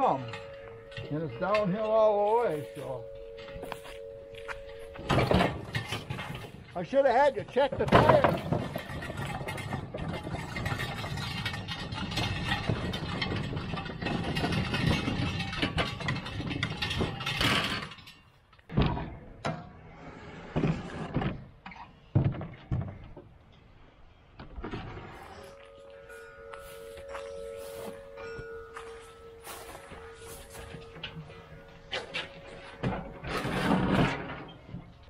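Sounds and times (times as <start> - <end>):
wagon wheels rattling over pavement: 0.0 - 18.6, 24.6 - 35.0
knocks and bumps: 0.0 - 19.7, 20.5 - 23.5.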